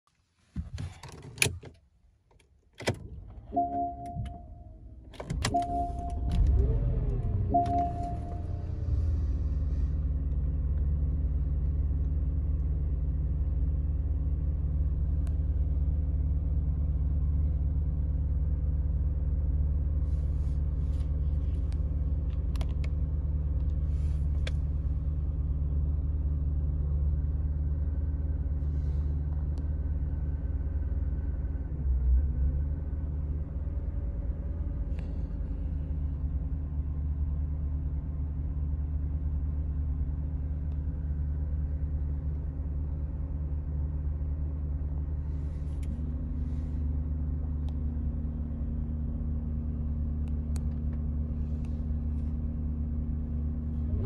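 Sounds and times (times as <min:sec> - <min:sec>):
car engine starting and idling: 0:00.3 - 0:54.0
dashboard chime: 0:03.6 - 0:04.6, 0:05.5 - 0:06.3, 0:07.5 - 0:08.5.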